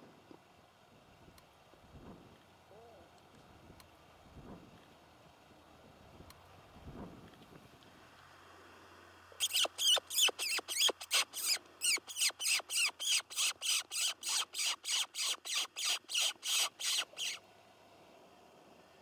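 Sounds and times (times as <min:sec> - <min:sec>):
high short squeaks from predator call: 0:09.4 - 0:17.4.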